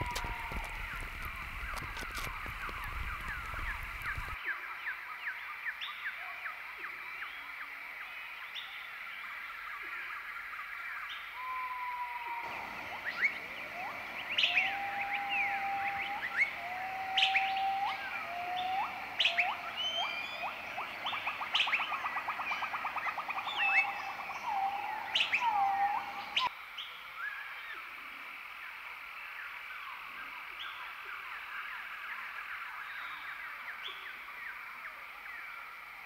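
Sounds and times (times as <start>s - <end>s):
downward-slurred bird whistles: 11.4s - 26.5s
level bird whistles with upward flick: 13.0s - 26.5s.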